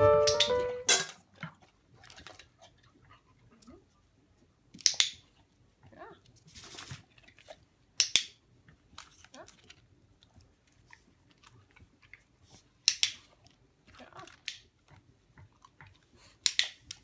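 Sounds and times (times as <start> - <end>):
dog chewing and licking: 1.3 - 3.5, 10.2 - 16.9.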